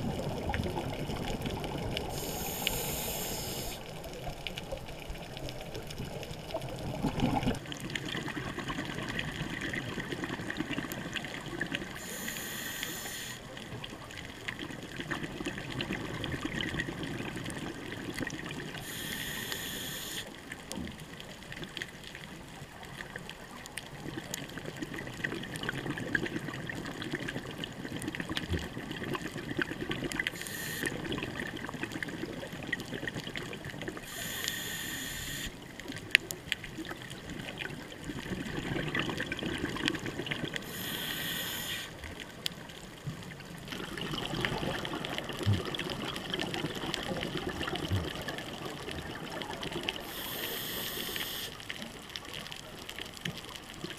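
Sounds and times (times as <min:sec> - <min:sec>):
exhaled bubbles rushing: 0:00.0 - 0:02.7, 0:04.0 - 0:12.0, 0:14.5 - 0:18.8, 0:36.8 - 0:40.6, 0:43.5 - 0:50.0
underwater water noise: 0:00.0 - 0:53.9.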